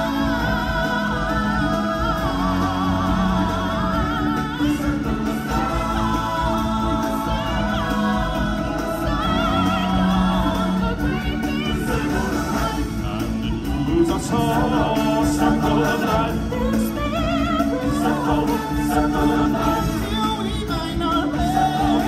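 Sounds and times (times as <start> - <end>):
loud backing music: 0.0 - 22.0
voices singing together: 0.0 - 22.0.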